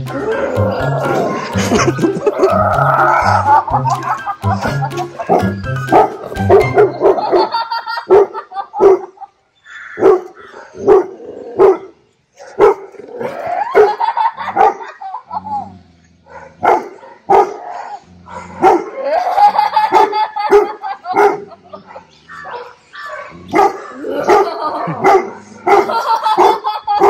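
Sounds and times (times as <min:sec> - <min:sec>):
dog barking: 0:05.3 - 0:07.2, 0:08.1 - 0:09.1, 0:10.0 - 0:13.0, 0:13.8 - 0:14.9, 0:16.3 - 0:19.0, 0:19.9 - 0:26.7.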